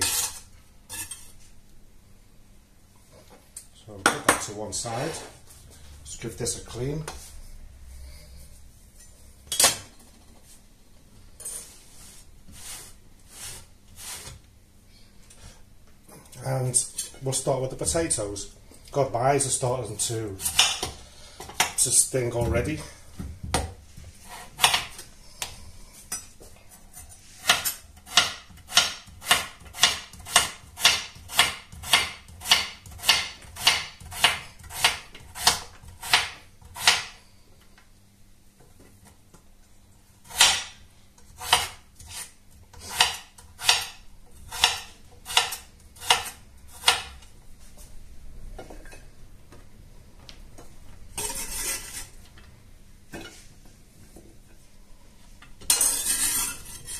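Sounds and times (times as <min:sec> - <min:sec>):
knife scraping cutting board: 0:00.0 - 0:01.5, 0:11.4 - 0:14.4, 0:24.0 - 0:25.0, 0:41.3 - 0:47.1, 0:51.2 - 0:52.2, 0:55.7 - 0:56.9
knife chopping on cutting board: 0:27.4 - 0:37.1, 0:40.3 - 0:40.7, 0:41.4 - 0:47.1.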